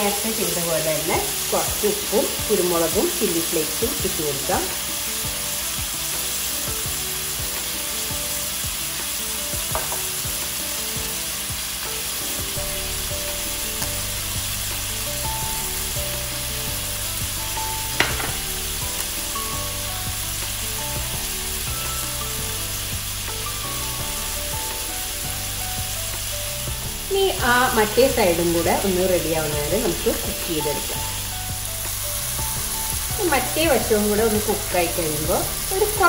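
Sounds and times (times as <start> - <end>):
fish sizzling in a pan: 0.0 - 36.0.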